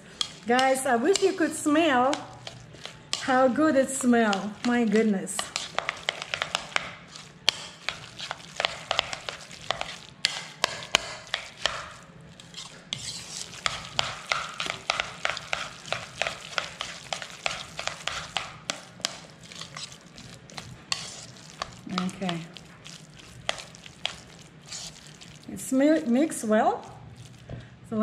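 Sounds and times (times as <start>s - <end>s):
fork mashing wet mixture: 0.0s - 27.7s
fork clicking on bowl: 0.2s - 1.5s, 2.1s - 3.4s, 4.0s - 11.9s, 13.6s - 20.0s.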